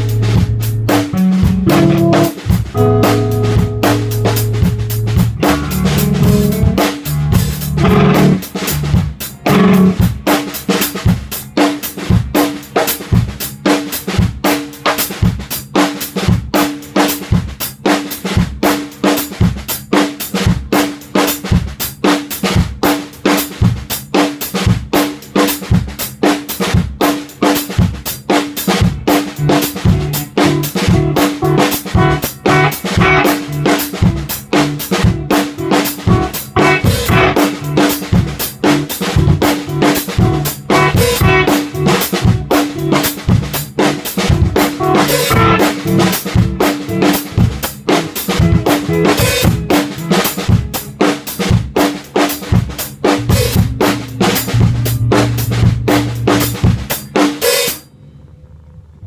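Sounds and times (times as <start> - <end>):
electric guitar chords: 0.0 - 14.1, 28.6 - 57.5
drum kit groove: 0.0 - 57.8.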